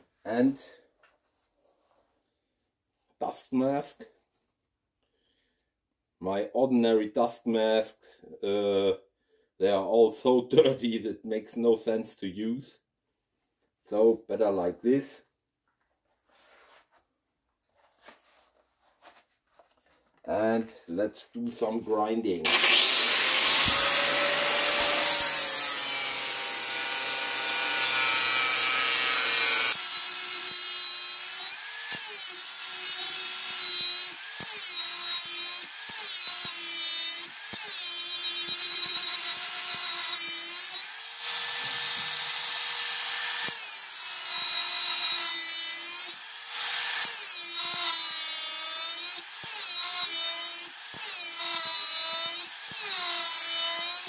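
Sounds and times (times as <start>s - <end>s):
angle grinder grinding steel: 22.4s - 54.0s.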